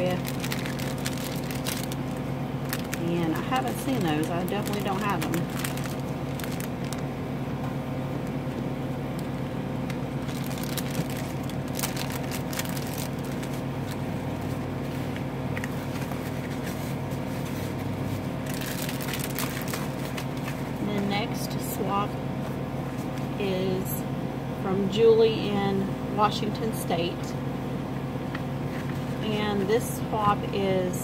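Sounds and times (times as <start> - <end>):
paper and cards rustling: 0.0 - 7.0, 10.2 - 20.7
low machine hum: 0.0 - 31.0.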